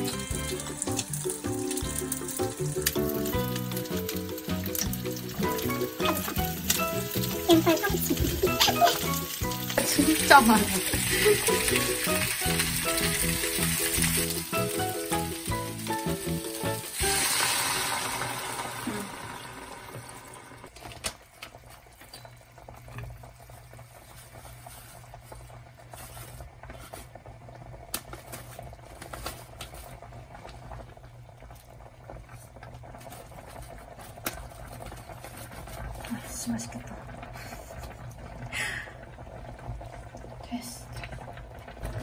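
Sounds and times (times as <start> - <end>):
water hissing in hot pan: 0.0 - 20.7, 31.8 - 42.0
pan simmering: 0.0 - 42.0.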